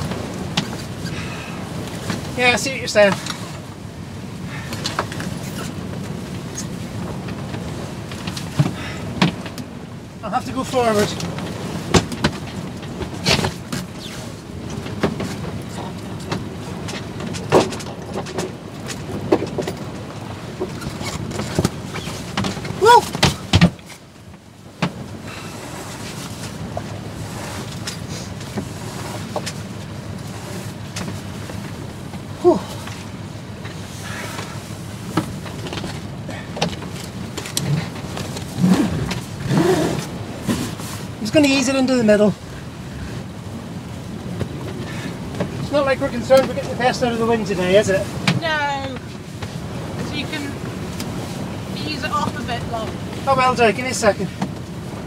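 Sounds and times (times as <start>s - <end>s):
wind and water rushing: 0.0s - 55.0s
short squeaks from deck gear: 13.9s - 14.2s.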